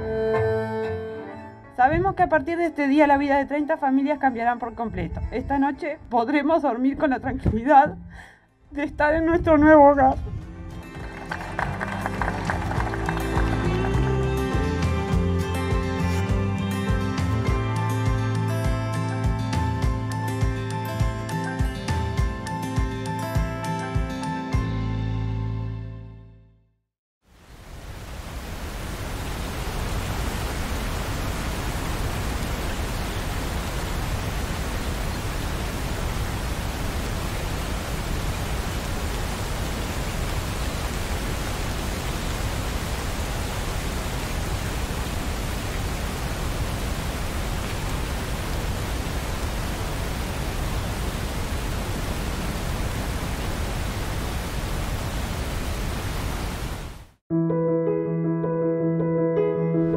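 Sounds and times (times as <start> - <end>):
steady rain hiss: 10.8 - 15.4, 27.2 - 57.2.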